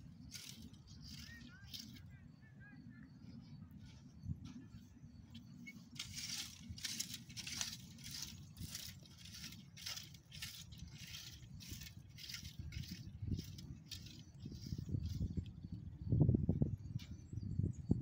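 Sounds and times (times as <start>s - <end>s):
rake scraping through stony soil: 0.0s - 2.1s, 5.4s - 15.8s.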